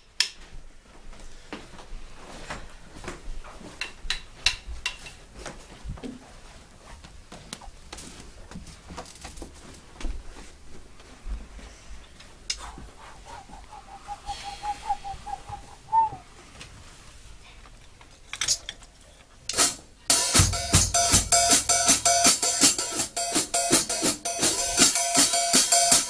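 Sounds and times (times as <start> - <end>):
warbling tone: 13.0 - 16.2
drum kit playing: 19.5 - 26.0.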